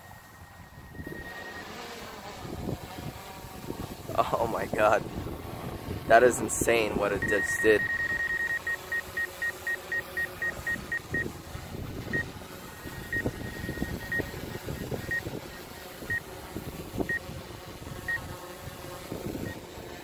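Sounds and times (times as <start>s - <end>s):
high electronic warning beeps: 0.8s - 1.7s, 7.2s - 11.3s, 12.1s - 16.2s.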